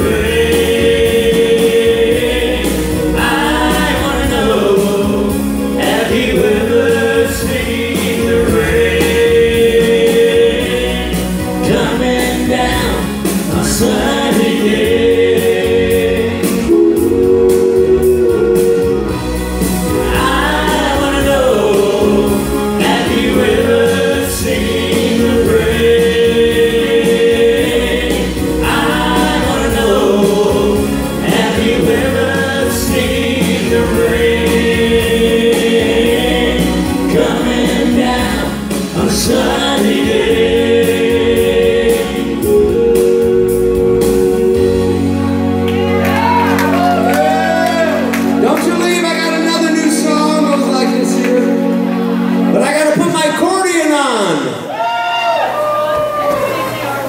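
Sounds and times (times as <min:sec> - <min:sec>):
electronic keyboard backing: 0:00.0 - 0:57.0
harmonica solo: 0:16.2 - 0:19.9.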